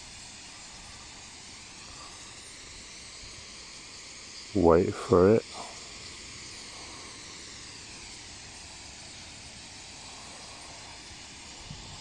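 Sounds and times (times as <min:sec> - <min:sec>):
starling flock rushing hiss: 0:00.0 - 0:12.0.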